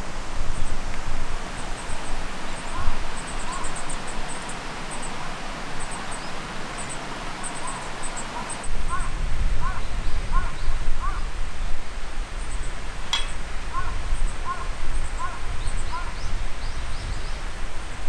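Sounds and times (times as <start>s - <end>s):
flowing river water: 0.0s - 9.0s
bird calling: 2.5s - 5.2s, 5.8s - 11.2s
sharp click: 13.1s - 13.4s.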